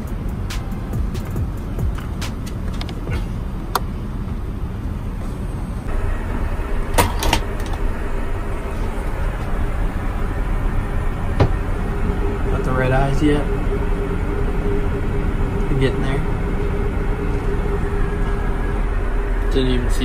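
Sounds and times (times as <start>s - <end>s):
airplane cabin noise: 0.0s - 20.0s.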